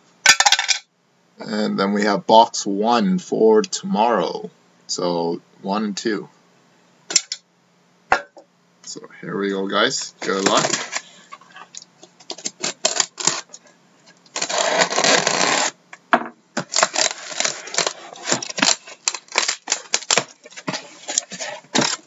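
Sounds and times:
tape and cardboard being cut: 0:12.3 - 0:13.6, 0:14.3 - 0:15.8, 0:16.6 - 0:22.0.

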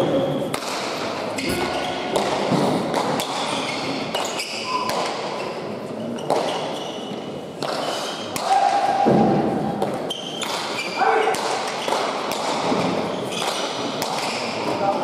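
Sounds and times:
shoe squeaks on court floor: 0:03.3 - 0:08.3, 0:10.0 - 0:11.0.

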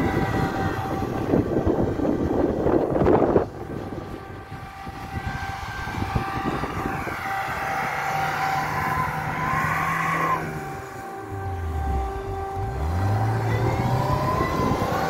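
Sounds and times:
car engine whining under load: 0:00.0 - 0:15.0.

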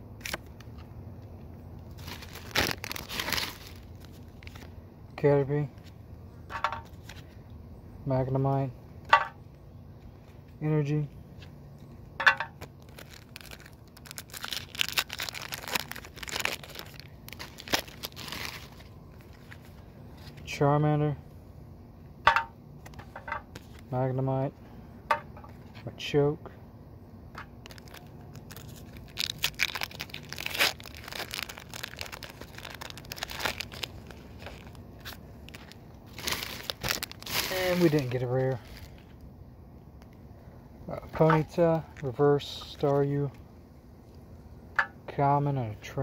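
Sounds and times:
foil wrapper crinkling and tearing: 0:00.2 - 0:00.8, 0:01.8 - 0:04.7, 0:12.5 - 0:20.4, 0:27.6 - 0:39.2.

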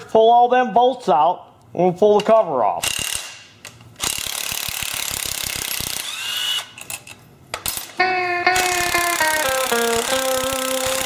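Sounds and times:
guitar music: 0:08.0 - 0:11.0.

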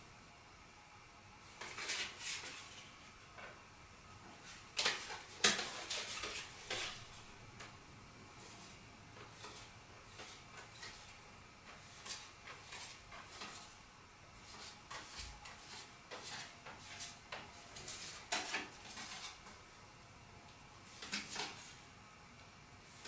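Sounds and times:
playing cards clicking and rustling: 0:21.0 - 0:21.8.

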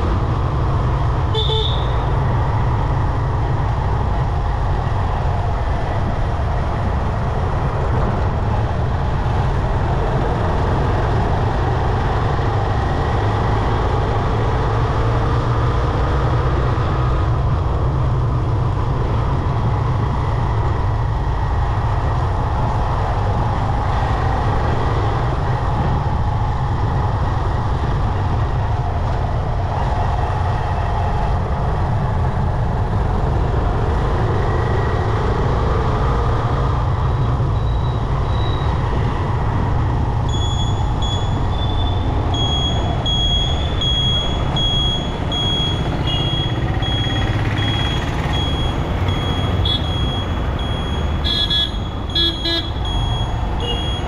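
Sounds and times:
wind and road noise: 0:00.0 - 0:54.0
motorcycle engine rumble: 0:39.5 - 0:54.0.

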